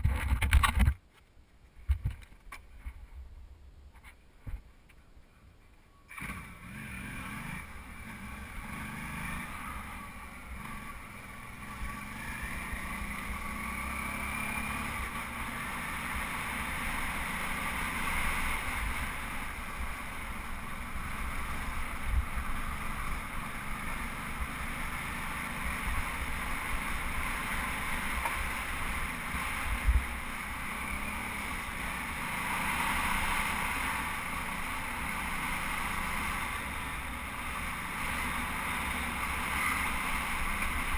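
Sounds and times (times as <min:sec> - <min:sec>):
motorcycle engine running: 0:06.1 - 0:40.9.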